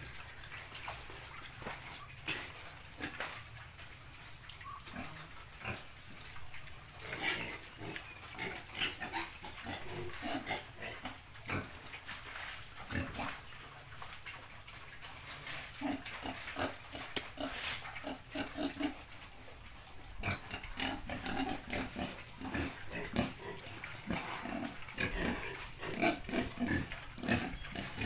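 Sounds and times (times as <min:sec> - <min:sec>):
pigs grunting: 0:01.1 - 0:03.4, 0:04.6 - 0:12.0, 0:12.8 - 0:28.0.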